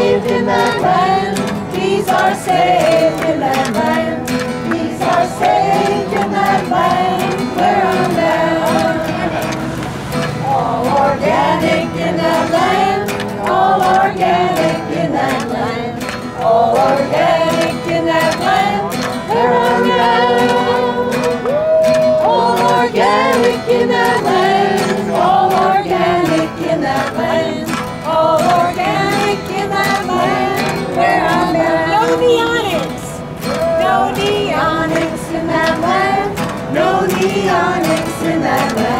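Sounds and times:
backing music: 0:00.0 - 0:38.9
group of voices singing: 0:00.0 - 0:38.9.

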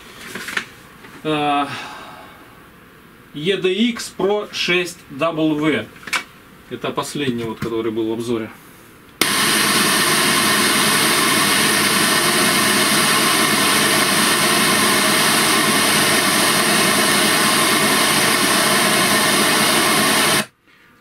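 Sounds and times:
speaker playing noise test hiss: 0:09.2 - 0:20.6.

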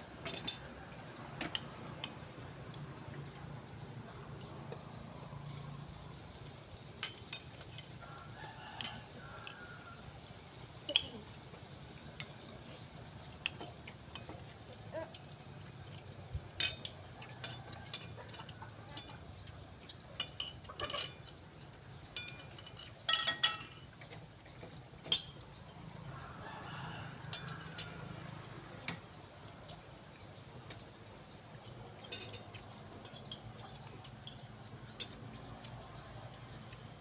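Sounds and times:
metal spoons clinking on plates: 0:00.2 - 0:02.3, 0:07.0 - 0:08.2, 0:08.8 - 0:09.6, 0:16.5 - 0:21.5, 0:22.1 - 0:25.7, 0:27.3 - 0:28.2, 0:28.8 - 0:29.3, 0:31.9 - 0:35.8.

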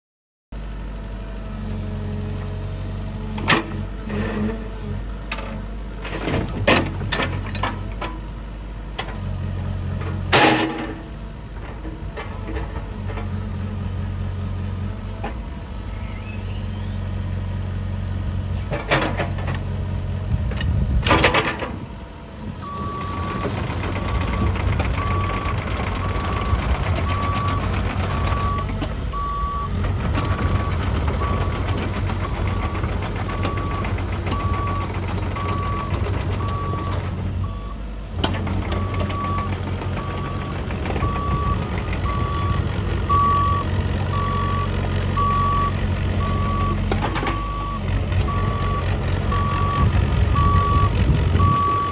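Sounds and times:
excavator diesel engine running: 0:00.6 - 0:51.9
travel alarm beeping: 0:28.2 - 0:29.7, 0:40.1 - 0:46.8, 0:47.4 - 0:51.9.

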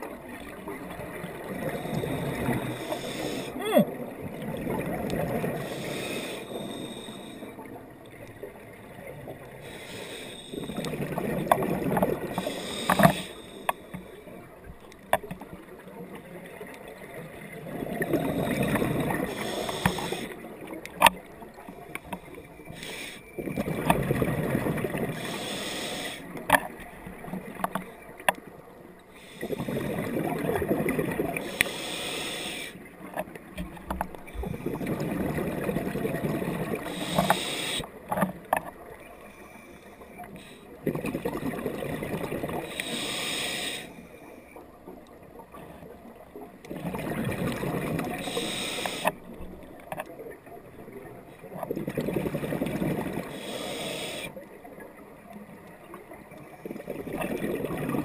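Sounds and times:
exhaled bubbles rumbling underwater: 0:00.0 - 0:31.8, 0:32.8 - 0:39.3, 0:40.1 - 0:43.2, 0:44.6 - 0:58.0
regulator inhalation: 0:01.6 - 0:03.7, 0:05.6 - 0:07.6, 0:09.6 - 0:10.8, 0:12.4 - 0:14.0, 0:18.1 - 0:20.4, 0:22.7 - 0:23.3, 0:25.2 - 0:26.3, 0:31.4 - 0:32.8, 0:36.9 - 0:37.9, 0:42.7 - 0:44.0, 0:48.2 - 0:49.2, 0:53.2 - 0:54.4.

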